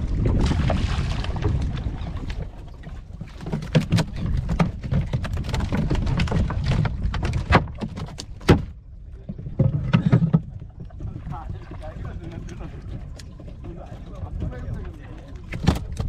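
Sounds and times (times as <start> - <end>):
fish flapping in boat bottom: 0.1 - 8.8
fish splashing at water surface: 0.2 - 2.5.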